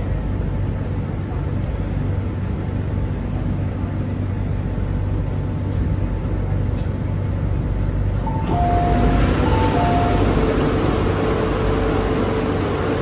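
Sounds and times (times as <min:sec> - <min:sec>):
train interior rumble: 0:00.0 - 0:13.0.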